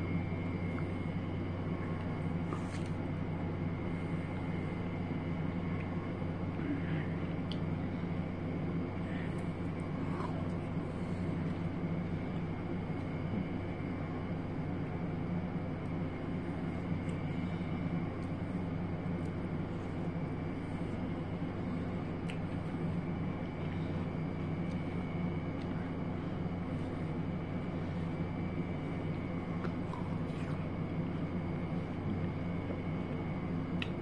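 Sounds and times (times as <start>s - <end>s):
low mechanical hum: 0.0s - 34.0s.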